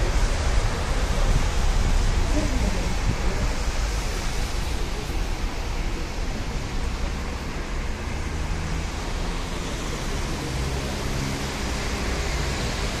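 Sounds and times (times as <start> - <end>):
distant jet engines: 0.0 - 7.9
rain: 0.0 - 13.0
tyres on a wet road: 0.0 - 13.0.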